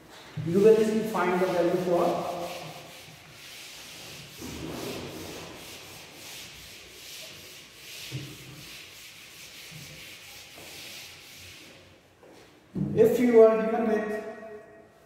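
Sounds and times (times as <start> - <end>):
eraser wiping whiteboard: 0.1 - 12.0.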